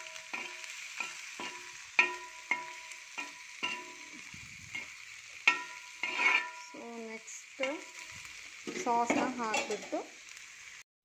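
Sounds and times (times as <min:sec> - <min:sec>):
metal spoon clacking on pan: 0:00.0 - 0:06.8, 0:08.7 - 0:10.0
hot oil sizzling: 0:00.0 - 0:10.9.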